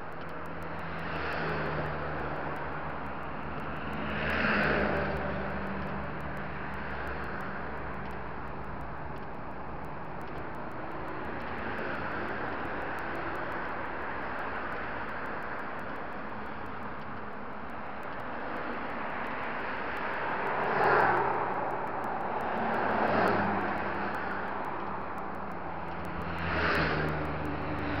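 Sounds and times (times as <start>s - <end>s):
road traffic passing: 0.0s - 28.0s
vehicle passing by: 3.9s - 5.9s, 20.4s - 21.6s, 22.5s - 24.8s, 26.0s - 28.0s.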